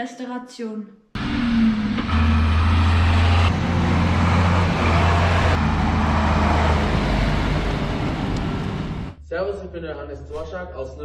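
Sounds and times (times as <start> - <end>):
diesel truck engine running: 1.2 - 9.2.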